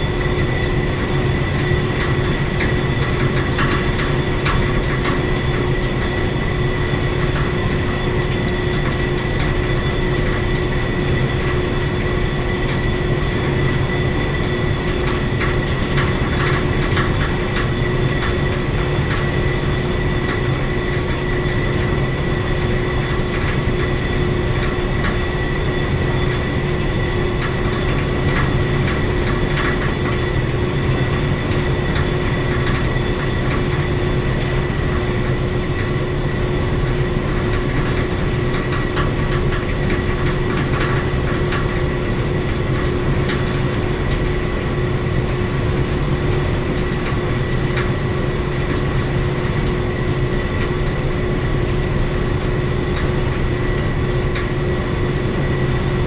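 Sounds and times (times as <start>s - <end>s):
machinery humming with high whine: 0.0s - 56.0s.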